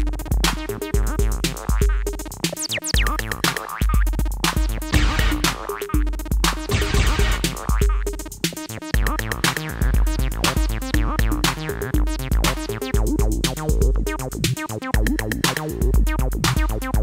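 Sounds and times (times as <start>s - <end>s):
deep kick drum: 0.0s - 2.2s, 3.0s - 8.3s, 9.0s - 14.2s, 15.0s - 17.0s
drum machine groove: 0.0s - 17.0s
hi-hat ticks: 0.0s - 17.0s
synthesizer acid bassline: 0.0s - 17.0s.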